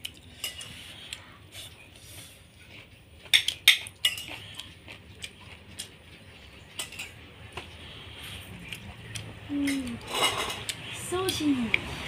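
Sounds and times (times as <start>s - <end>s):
spoon clinking on ceramic plates: 3.3s - 4.4s, 6.8s - 7.2s, 9.6s - 10.7s.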